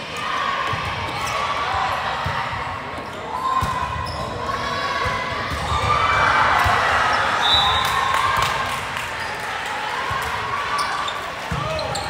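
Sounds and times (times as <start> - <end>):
crowd voices and cheers: 0.0 - 12.0
ball bouncing on court floor: 11.4 - 12.0.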